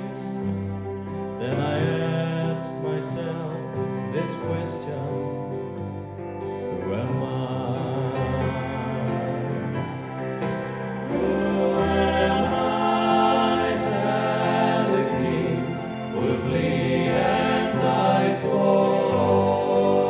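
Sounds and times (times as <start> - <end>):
held chords: 0.0 - 20.0
choir-like singing: 10.6 - 20.0.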